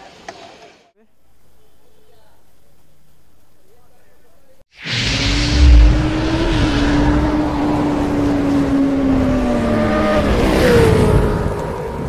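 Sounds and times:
motorcycle engine revving: 0:05.2 - 0:11.6.

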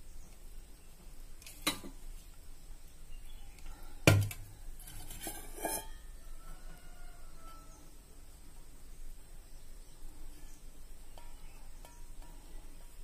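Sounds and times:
steel bowls clinking: 0:04.8 - 0:06.0.

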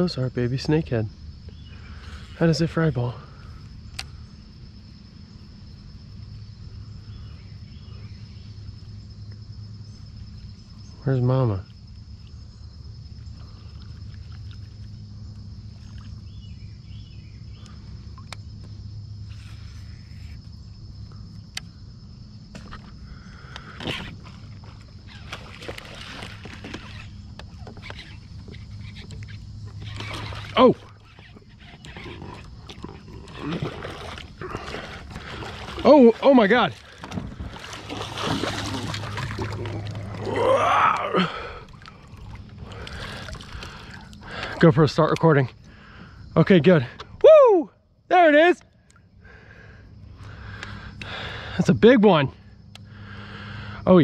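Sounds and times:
high insect drone: 0:00.0 - 0:54.0
water splashing and churning: 0:23.7 - 0:45.0
small chirps: 0:26.6 - 0:33.1
excited wordless exclamation: 0:47.2 - 0:48.6.

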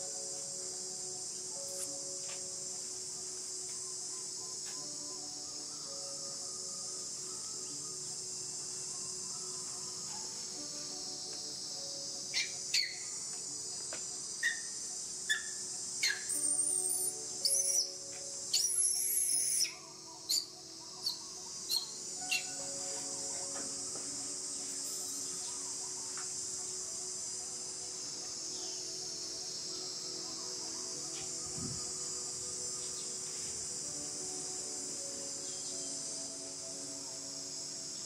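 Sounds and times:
insect drone: 0:00.0 - 0:38.0.

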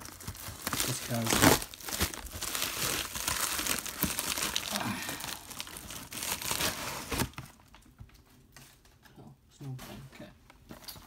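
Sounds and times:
plastic mailer crinkling: 0:00.0 - 0:07.8.

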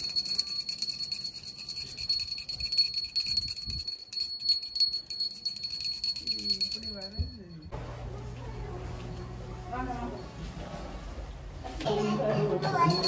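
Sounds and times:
hand bell ringing rapidly: 0:00.0 - 0:07.7, 0:12.6 - 0:13.0.

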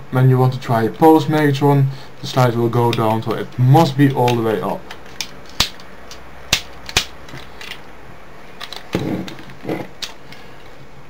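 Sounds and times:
plastic toy handling noises: 0:04.2 - 0:07.9, 0:08.5 - 0:10.8.

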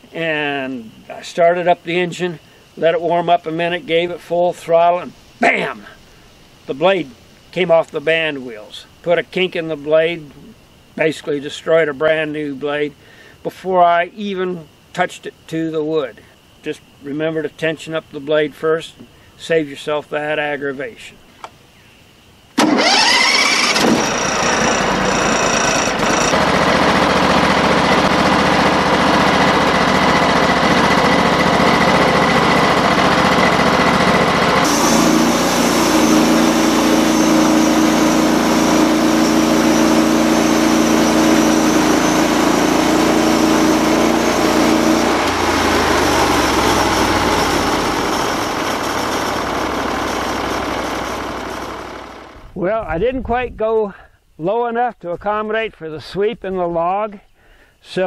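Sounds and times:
band saw cutting log: 0:22.6 - 0:52.4
gasoline engine running: 0:22.6 - 0:52.6.

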